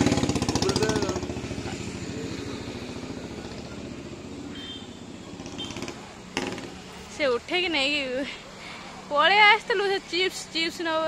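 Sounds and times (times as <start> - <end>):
motorcycle engine running: 0.0 - 7.2.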